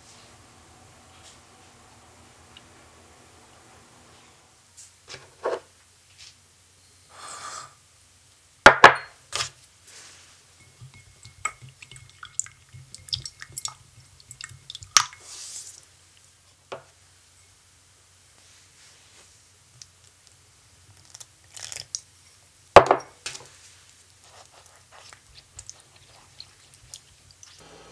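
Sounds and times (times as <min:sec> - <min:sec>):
spatula clinking against glass: 0:10.6 - 0:15.3.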